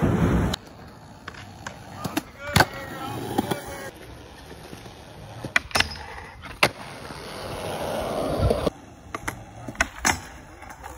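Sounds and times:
skateboard wheels rolling: 0.0s - 10.9s
skateboard clacking on concrete: 0.5s - 7.8s.

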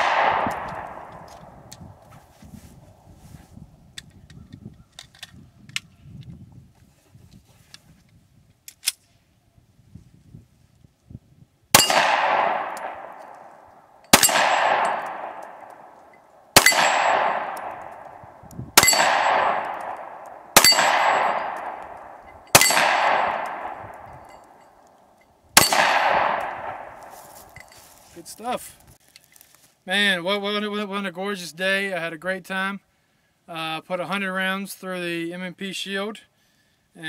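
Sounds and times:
pistol shots: 0.0s - 1.3s, 11.7s - 13.5s, 14.1s - 18.2s, 18.8s - 24.6s, 25.6s - 27.1s
steel plate target ringing: 11.8s - 12.6s, 14.1s - 17.8s, 18.8s - 24.8s, 25.6s - 26.6s.

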